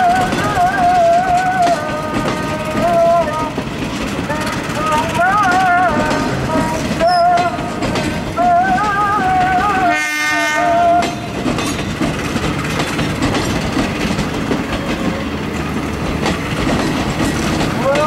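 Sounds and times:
train coaches rumbling past: 0.0s - 18.0s
wheels clattering over rail joints: 0.0s - 18.0s
train horn blast: 9.6s - 11.3s.

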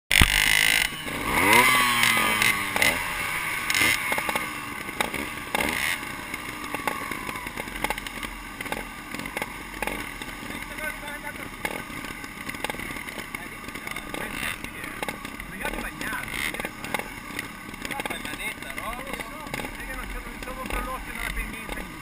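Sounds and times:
sharp clicks: 0.1s - 0.9s
dirt bike engines revving: 0.1s - 22.0s.

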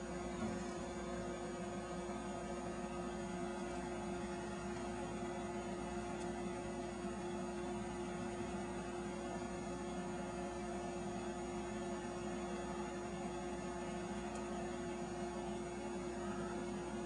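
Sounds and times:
electrical hum: 0.0s - 17.0s.

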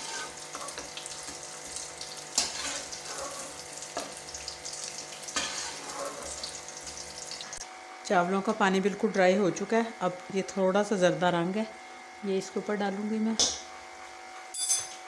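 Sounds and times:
hot oil sizzling: 0.0s - 7.6s.

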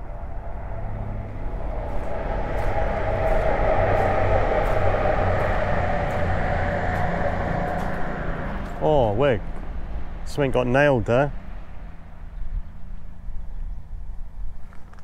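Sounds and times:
passing vehicle: 0.0s - 14.8s.

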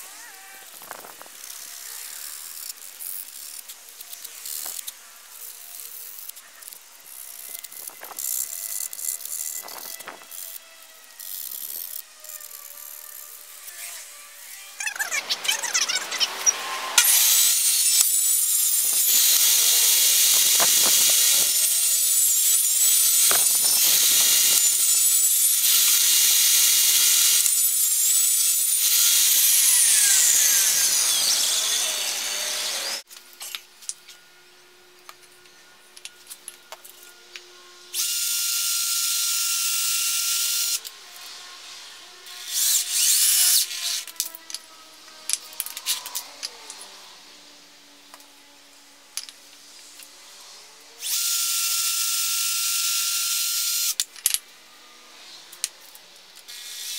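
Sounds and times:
table saw cutting: 0.0s - 33.1s.

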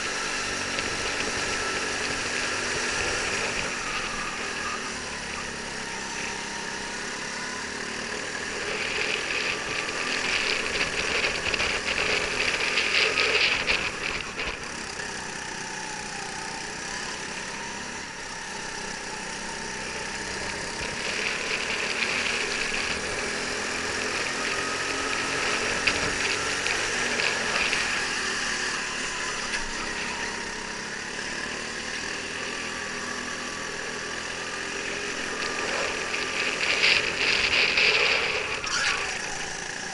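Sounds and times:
buzzing vibration rattle: 0.0s - 39.9s
go-kart engine: 0.0s - 39.9s.

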